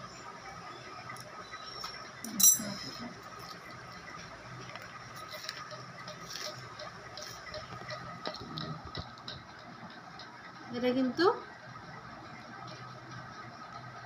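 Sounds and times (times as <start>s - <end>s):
metallic clink of scissors: 2.3s - 2.9s.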